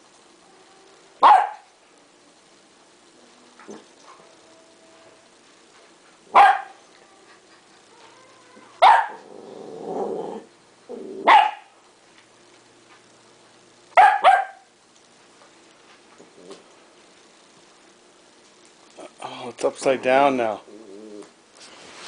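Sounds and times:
puppy barking: 0:01.2 - 0:01.7, 0:06.3 - 0:06.8, 0:08.8 - 0:09.2, 0:11.2 - 0:11.7, 0:14.0 - 0:14.7
puppy growling: 0:07.4 - 0:11.3, 0:16.2 - 0:16.7, 0:20.5 - 0:21.4.

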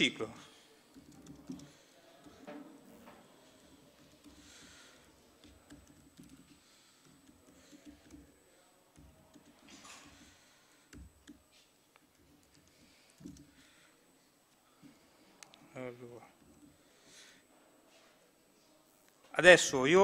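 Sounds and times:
laptop keyboard typing: 0:00.5 - 0:13.9, 0:16.3 - 0:17.3.

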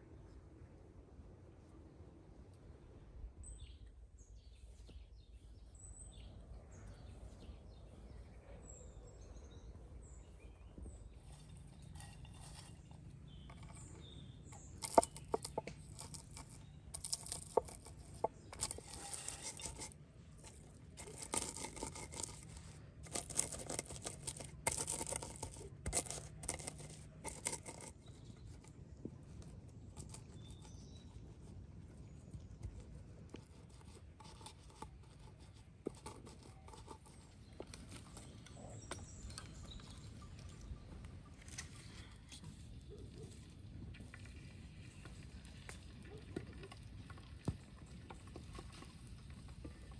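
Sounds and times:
birds chirping faintly: 0:02.8 - 0:49.9
stone crunching walnuts on wood: 0:13.3 - 0:28.6.

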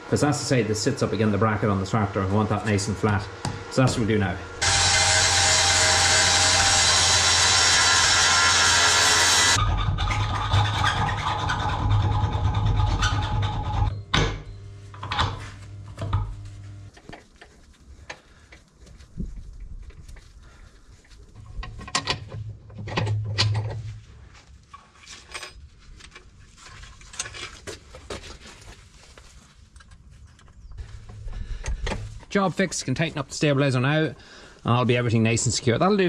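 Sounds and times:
low hum: 0:00.0 - 0:27.5.

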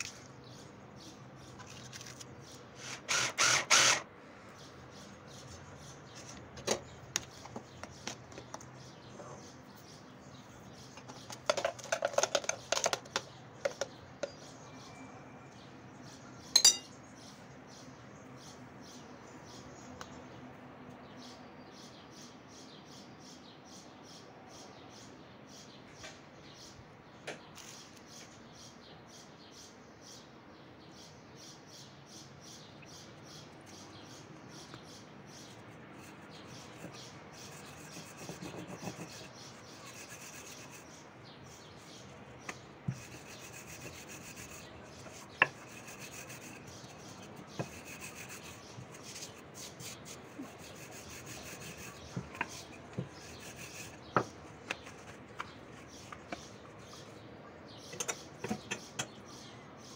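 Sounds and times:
hands kneading dough: 0:35.7 - 0:41.1, 0:41.8 - 0:56.9.

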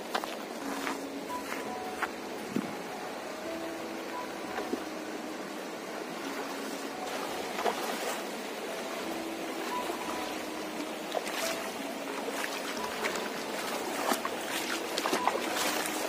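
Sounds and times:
river water running: 0:00.0 - 0:16.0
feet wading splashes: 0:05.8 - 0:16.0.

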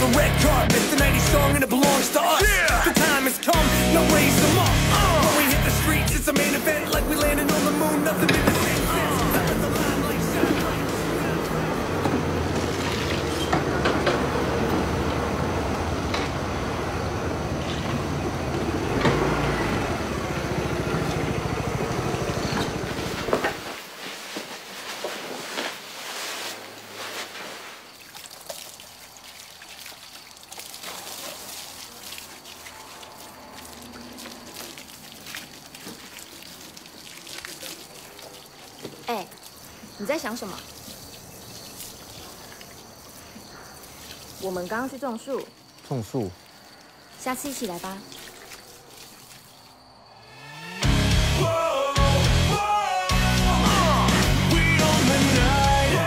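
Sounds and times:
scooter engines running: 0:03.6 - 0:23.8.

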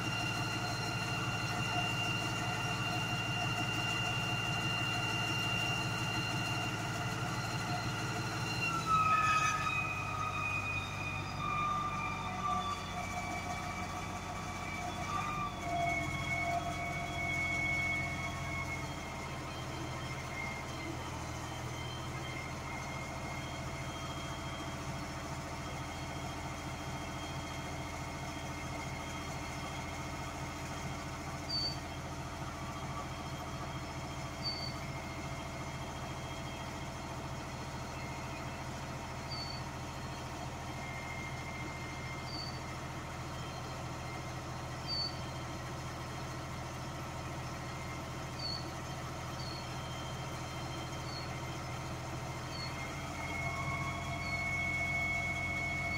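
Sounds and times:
sewer jetter droning: 0:00.0 - 0:55.9.

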